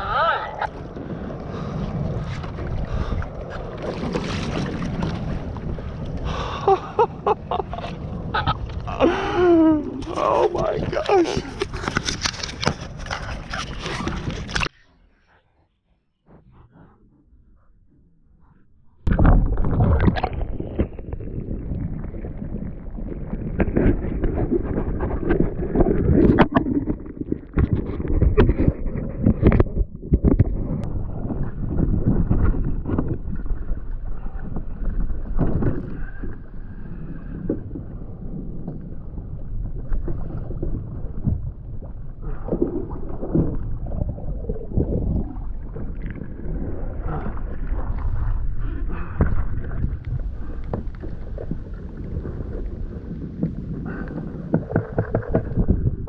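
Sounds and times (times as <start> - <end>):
water splashing against a hull: 0.0 - 14.8, 19.0 - 56.0
knocks and splashes: 3.5 - 5.8, 19.0 - 34.0, 49.2 - 56.0
wind buffeting microphone: 19.0 - 56.0.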